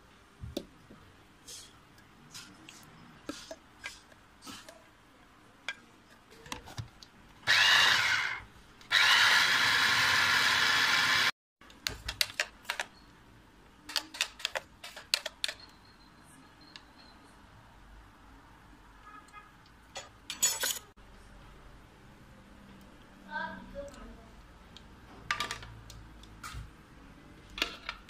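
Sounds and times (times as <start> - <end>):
electric blender running: 7.5 - 11.3.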